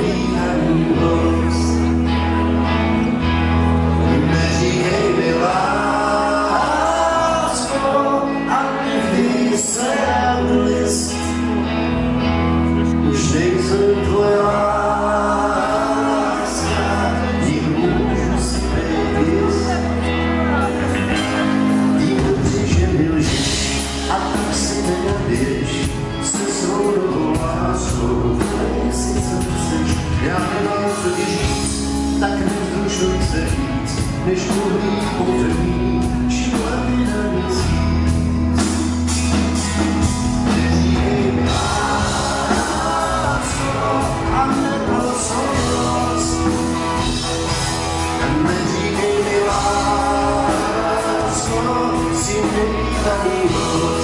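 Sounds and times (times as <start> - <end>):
person singing: 0.0 - 3.3, 3.9 - 38.7, 39.3 - 54.0
live band with electric guitars: 0.0 - 54.0.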